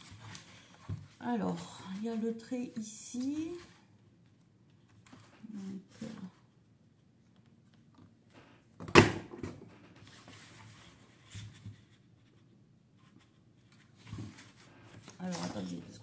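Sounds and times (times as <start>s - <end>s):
paper rustling: 0.0s - 3.8s, 10.0s - 16.0s.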